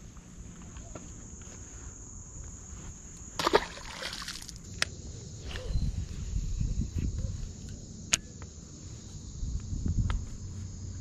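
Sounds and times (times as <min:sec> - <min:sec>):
crickets buzzing: 0:00.0 - 0:11.0
fish splashing into water: 0:03.4 - 0:04.6.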